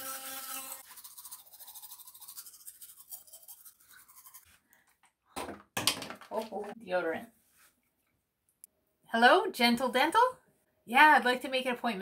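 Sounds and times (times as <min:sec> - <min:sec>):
electric toothbrush humming: 0:00.0 - 0:02.6
bristles scrubbing teeth: 0:00.0 - 0:04.6.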